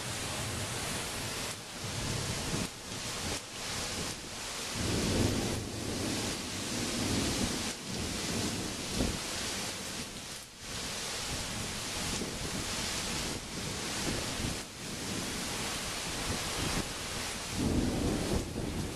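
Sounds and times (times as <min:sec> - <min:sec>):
gusting wind: 0:00.0 - 0:18.9
heavy rain: 0:00.0 - 0:18.9
low thunder rumble: 0:04.8 - 0:09.2, 0:17.6 - 0:18.9.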